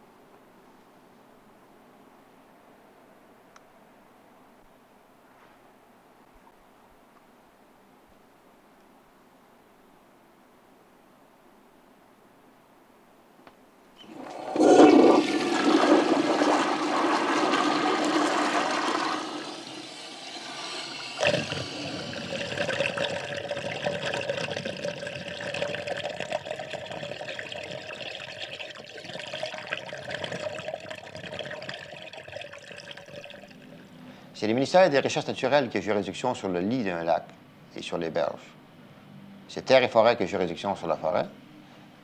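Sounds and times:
water rushing and gushing: 14.0 - 33.7.

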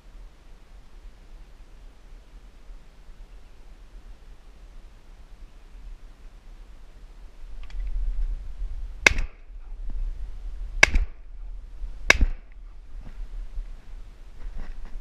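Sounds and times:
shotgun blasts: 9.0 - 9.5, 10.8 - 11.3, 12.1 - 12.6.

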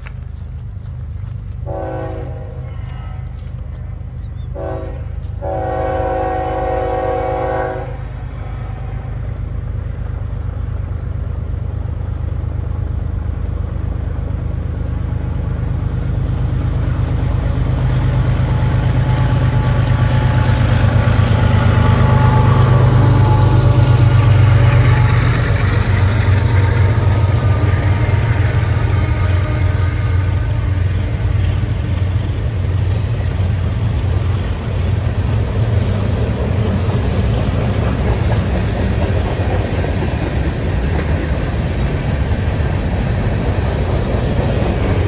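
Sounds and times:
low diesel rumble of locomotives: 0.0 - 45.0
train air horn blasts: 1.6 - 3.6, 4.5 - 9.1.

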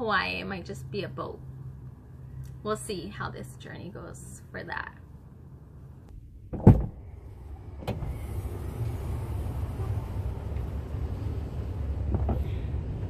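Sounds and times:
low outdoor rumble: 0.0 - 13.0
heavy thump: 6.5 - 7.0.

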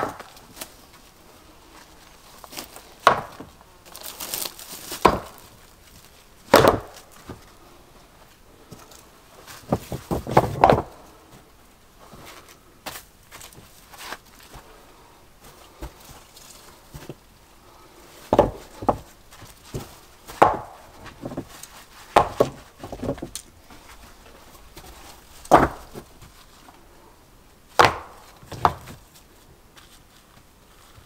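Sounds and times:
wood being struck: 0.0 - 0.4, 3.0 - 3.5, 5.0 - 5.4, 6.5 - 7.4, 9.6 - 11.0, 18.3 - 19.1, 19.7 - 21.5, 22.1 - 23.4, 25.5 - 26.1, 27.8 - 29.0.

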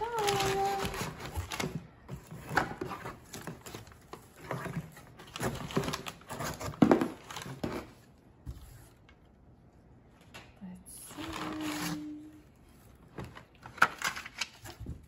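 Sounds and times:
packing paper crinkling: 0.0 - 8.0, 11.1 - 15.0
cardboard carton rustling: 0.0 - 9.1.

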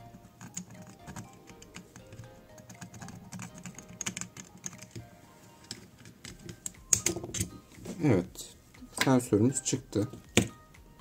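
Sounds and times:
soft background music: 0.0 - 11.0.

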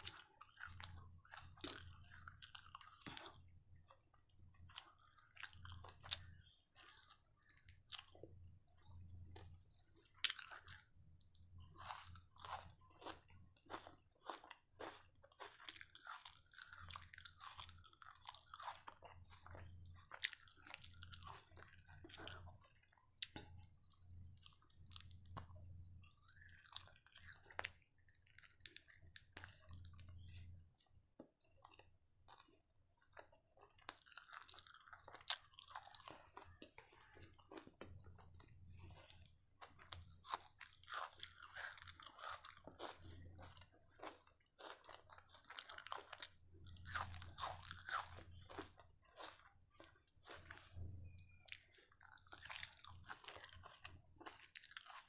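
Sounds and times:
person chewing crispy food: 0.0 - 55.0.

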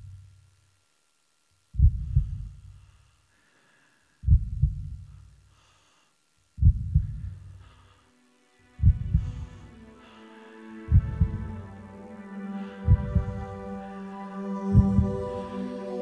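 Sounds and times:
low bass double thump: 1.8 - 2.6, 4.2 - 5.0, 6.6 - 7.4, 8.8 - 9.4, 10.9 - 11.4, 12.9 - 13.4, 14.8 - 15.2.

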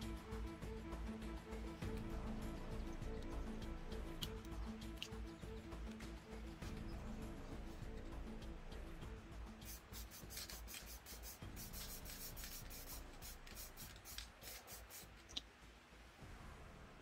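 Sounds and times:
tool scratching on glossy paper: 9.6 - 15.1.

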